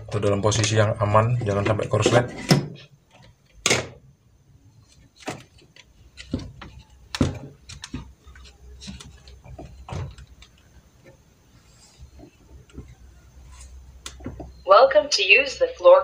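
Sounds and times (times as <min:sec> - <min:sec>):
hard plastic clicks and knocks: 0:05.2 - 0:11.2.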